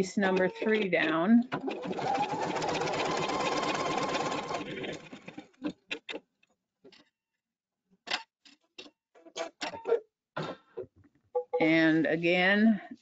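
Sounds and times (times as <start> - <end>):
embroidery machine stitching: 0.2 - 5.8.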